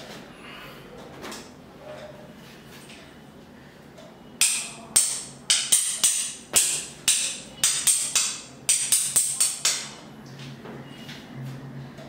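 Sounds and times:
wooden clappers striking: 4.4s - 10.0s.

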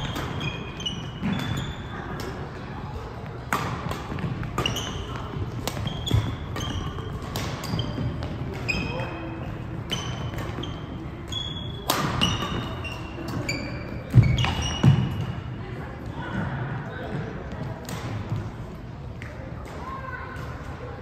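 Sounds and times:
rackets striking shuttlecock: 0.0s - 2.6s, 3.4s - 15.4s
shoes squeaking on court: 0.0s - 15.6s.

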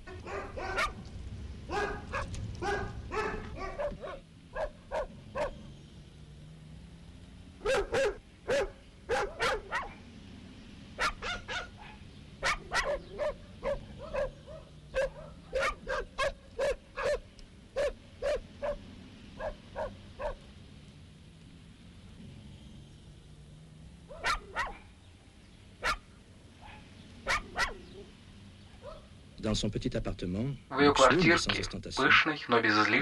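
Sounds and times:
dogs barking: 0.0s - 1.1s, 1.7s - 5.7s, 7.6s - 10.2s, 10.9s - 20.6s, 24.0s - 25.0s, 25.8s - 29.2s.

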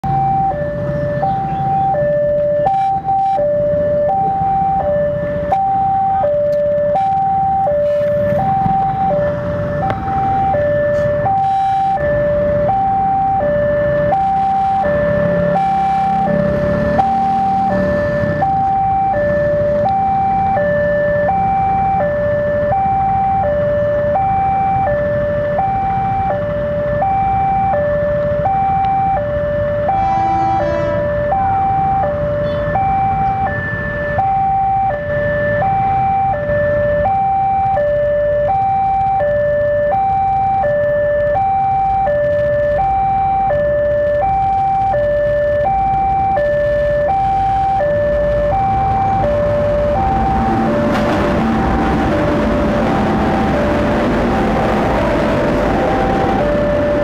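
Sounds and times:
level crossing two-tone alarm: 0.0s - 57.0s
low rumbling noise: 44.0s - 57.0s.

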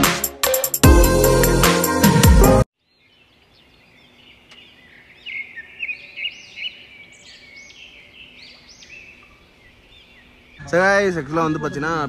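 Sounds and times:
budgerigars chirping and chattering: 10.0s - 12.0s.

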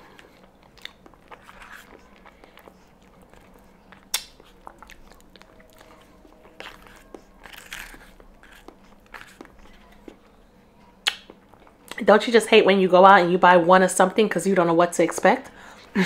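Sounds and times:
mouth sounds of eating pudding: 0.4s - 10.2s.

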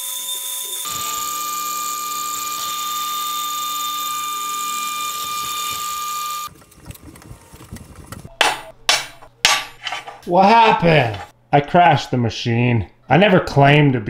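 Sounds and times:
drill press whining: 0.0s - 6.5s.

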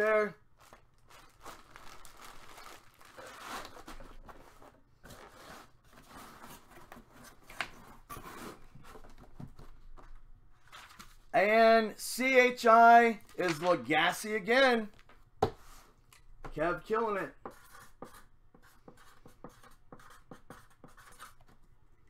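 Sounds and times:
plastic bag crinkling: 0.6s - 4.0s.

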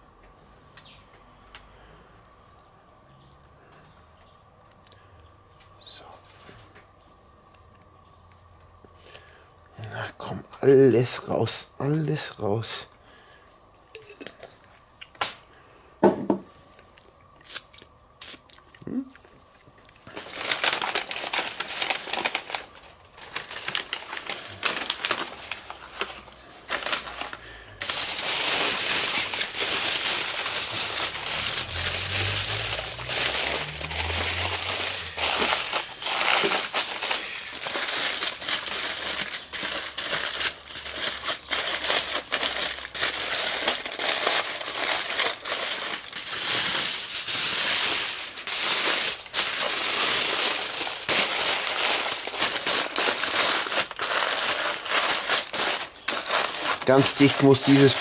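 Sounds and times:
paper and foil crinkling: 19.9s - 58.0s.

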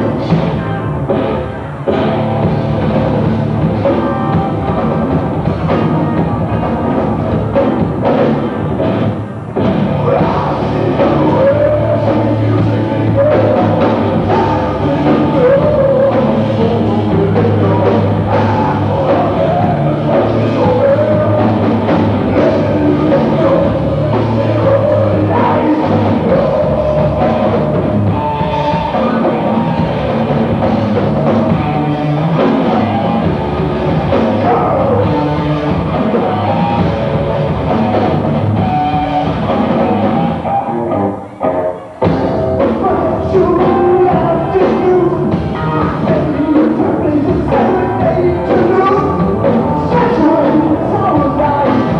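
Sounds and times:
person singing: 0.0s - 8.7s, 9.6s - 51.9s
drum kit: 0.0s - 51.9s
rock band playing live: 0.0s - 51.9s.

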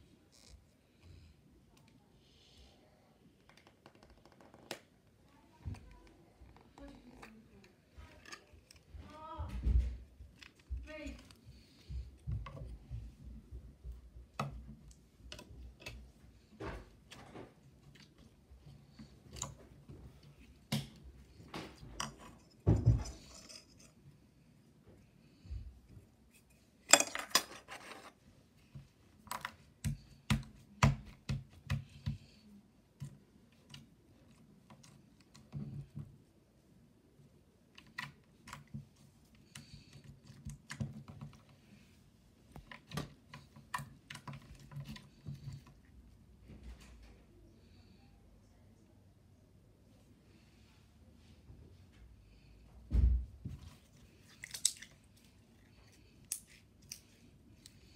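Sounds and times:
slime crackling: 54.2s - 55.2s.

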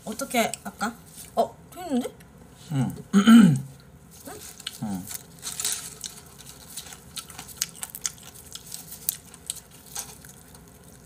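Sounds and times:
roast chicken crackling and squishing: 3.8s - 11.0s.

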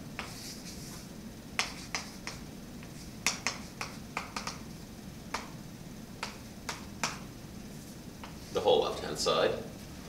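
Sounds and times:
chalk tapping on a blackboard: 0.2s - 1.0s, 1.6s - 4.6s, 5.3s - 5.6s, 6.2s - 7.3s, 8.2s - 8.4s.

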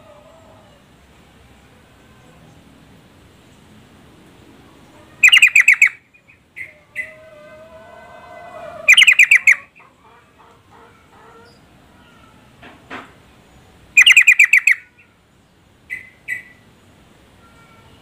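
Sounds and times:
bird calling sharp notes: 5.1s - 7.3s, 8.6s - 9.9s, 14.0s - 15.1s, 15.9s - 16.6s.

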